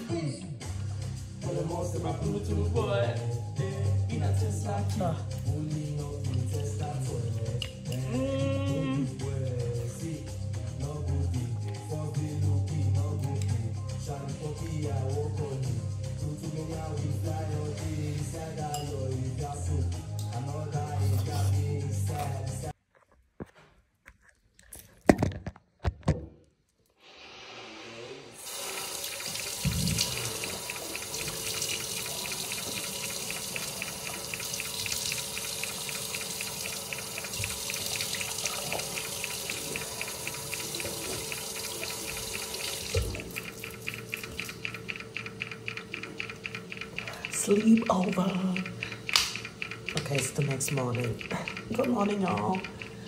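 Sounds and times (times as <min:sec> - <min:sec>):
tap running into a sink: 0:28.4 - 0:47.6
sharp clicks: 0:48.1 - 0:53.0.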